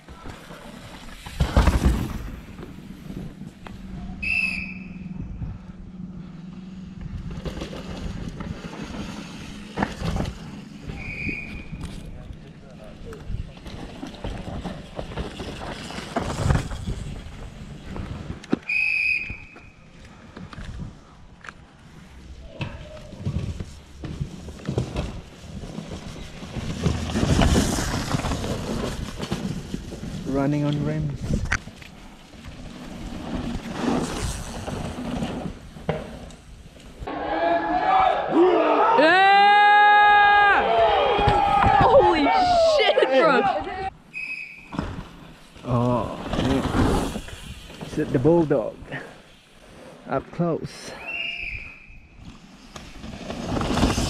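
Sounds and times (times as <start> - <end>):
bike tyres ripping through dirt: 0.0 - 5.1, 7.1 - 12.8, 13.4 - 19.9, 22.9 - 37.1, 44.0 - 50.0, 51.0 - 54.0
whistle blast: 4.2 - 5.2, 10.9 - 11.8, 18.6 - 19.8, 44.1 - 44.8, 51.0 - 52.2.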